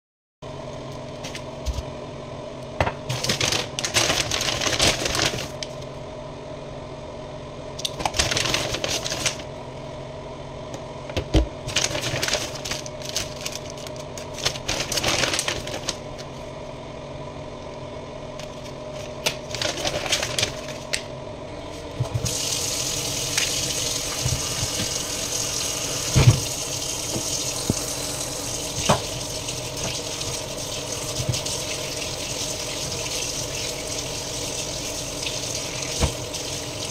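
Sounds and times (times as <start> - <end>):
steady hum: 0.4 - 36.9
plastic packaging crinkling: 3.1 - 5.8, 7.9 - 9.5, 11.6 - 16.4, 18.4 - 21.1.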